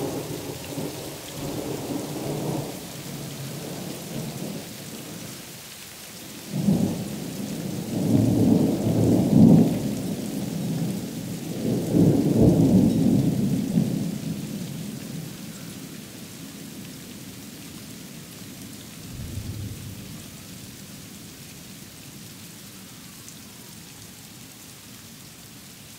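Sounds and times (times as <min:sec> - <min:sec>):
thunder rumbling: 0:19.0 - 0:20.5.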